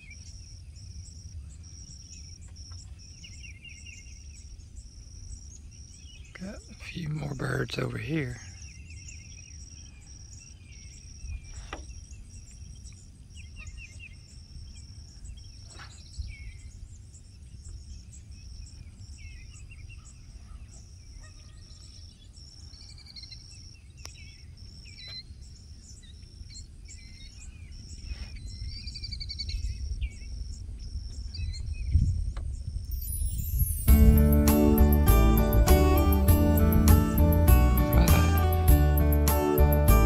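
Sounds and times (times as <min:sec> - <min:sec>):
birds chirping: 0:00.0 - 0:32.0, 0:32.6 - 0:40.0
low rumble: 0:33.0 - 0:40.0.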